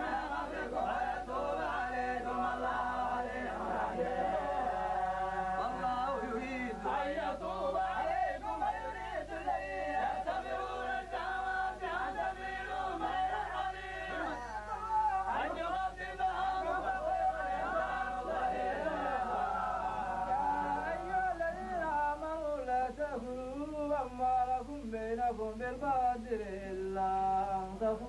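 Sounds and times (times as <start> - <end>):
men chanting together: 0.0 - 14.5, 15.1 - 21.7.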